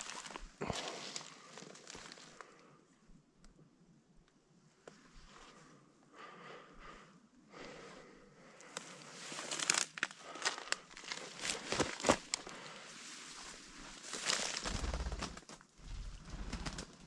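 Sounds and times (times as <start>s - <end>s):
footsteps through dry grass: 0.0s - 2.4s, 8.7s - 15.2s
twigs crackling and snapping: 0.0s - 2.6s, 8.6s - 12.8s, 13.4s - 17.0s.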